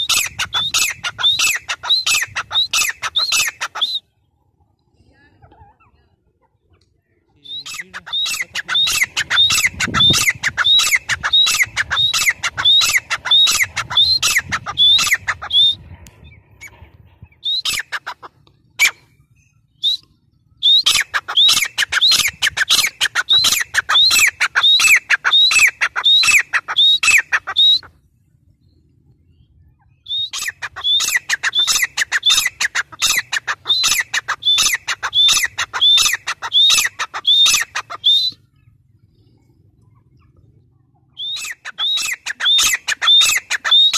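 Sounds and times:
francolin calling: 0:29.9 - 0:38.6, 0:41.2 - 0:43.9.

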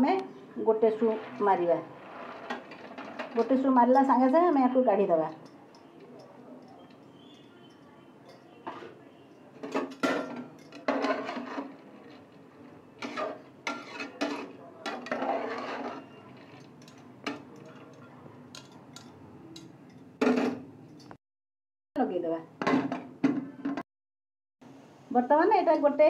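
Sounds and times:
metal ladle scraping a pot: 0:00.9 - 0:19.1.

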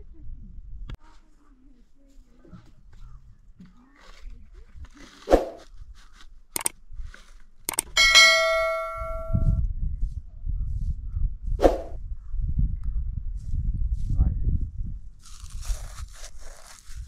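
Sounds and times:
sharp clicks: 0:06.6 - 0:06.8, 0:07.7 - 0:08.0
notification bell ding: 0:08.0 - 0:09.6.

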